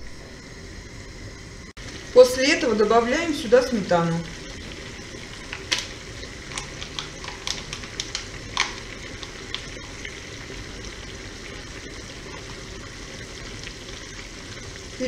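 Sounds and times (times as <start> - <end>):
water boiling and bubbling: 0.0 - 15.0
spatula tapping and clicking: 6.5 - 9.8.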